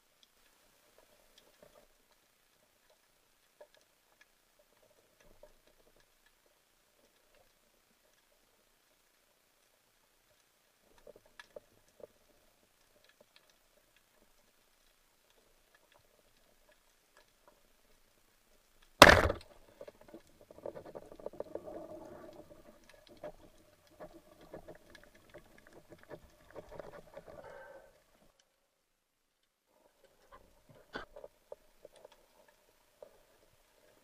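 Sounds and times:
crackling and rattling of spear line: 0.1s - 28.6s, 29.3s - 34.0s
faint clicks: 0.1s - 28.6s
speargun crack underwater: 19.0s - 20.1s.

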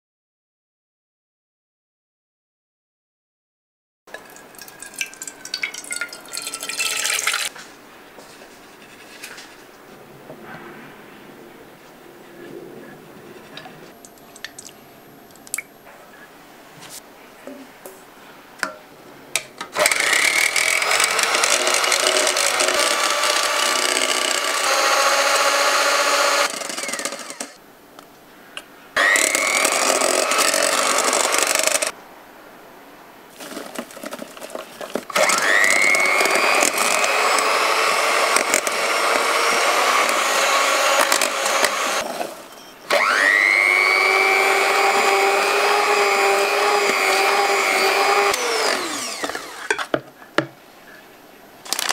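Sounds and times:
electric hand mixer whirring: 19.8s - 27.6s, 29.0s - 31.9s, 34.5s - 42.1s, 42.9s - 49.9s.

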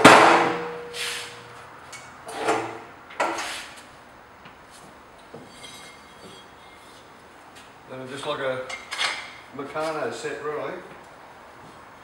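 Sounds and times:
knocks and scrapes of steel parts: 5.2s - 7.1s.

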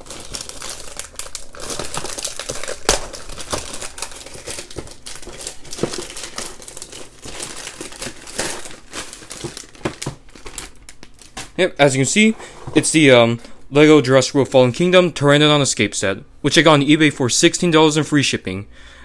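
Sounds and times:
plastic wrapping crinkling and tearing: 0.0s - 11.6s.

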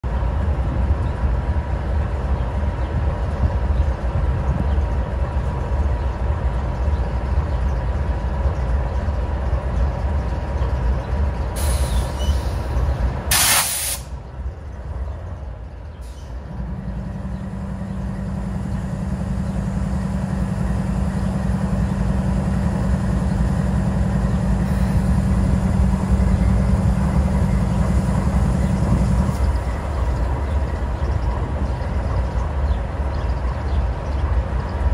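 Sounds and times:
diesel locomotive idling: 0.0s - 34.9s
air hiss blast: 13.3s - 14.2s.

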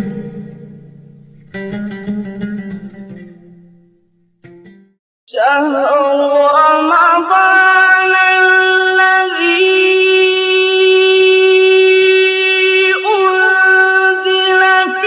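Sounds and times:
melody of long held notes: 0.0s - 4.7s.

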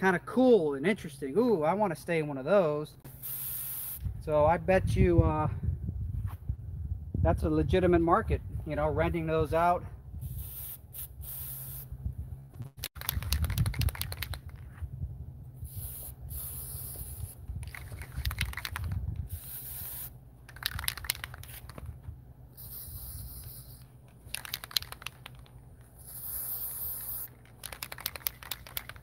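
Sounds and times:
aerosol spray hissing: 3.1s - 4.0s, 10.2s - 11.9s, 15.6s - 17.4s, 19.3s - 20.2s, 22.5s - 23.9s, 26.0s - 27.3s.

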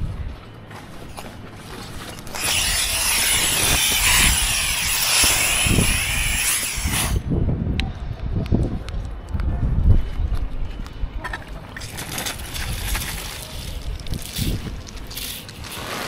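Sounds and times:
hose nozzle spraying water: 14.2s - 16.0s.

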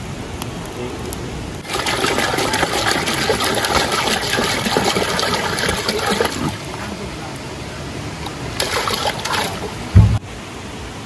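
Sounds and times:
water splashing into metal pot: 1.6s - 6.6s, 8.2s - 10.2s.

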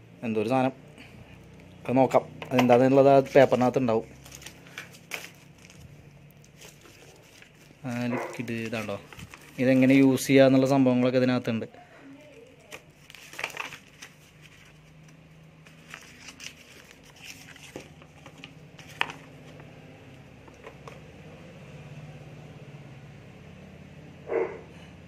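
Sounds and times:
paper leaflet rustling: 2.6s - 10.7s, 12.6s - 19.8s.

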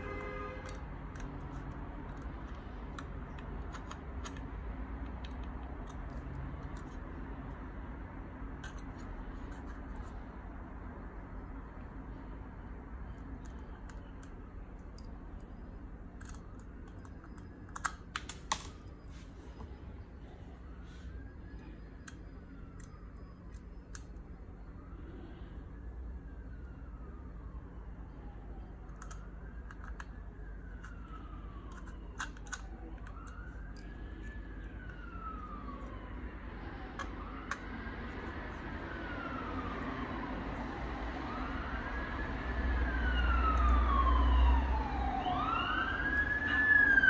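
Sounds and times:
steady low hum: 0.0s - 44.1s
small metal clicks and taps: 0.6s - 7.1s, 16.2s - 19.0s, 28.8s - 35.0s
siren wailing: 19.0s - 47.0s.

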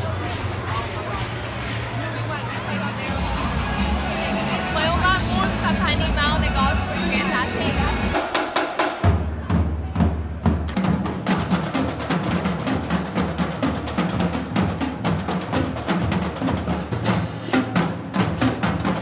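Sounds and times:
marching drumline playing: 0.0s - 19.0s.

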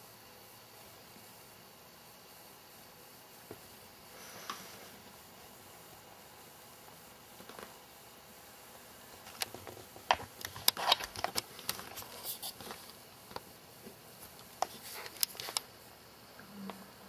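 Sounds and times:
rabbit clicking and crunching: 9.2s - 13.5s, 14.2s - 15.7s.

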